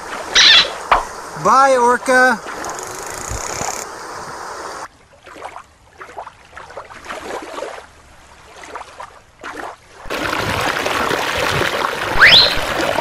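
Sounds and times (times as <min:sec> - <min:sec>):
water splashing in a pool: 0:02.0 - 0:03.8, 0:04.8 - 0:13.0
creek water rushing over rocks: 0:10.0 - 0:13.0.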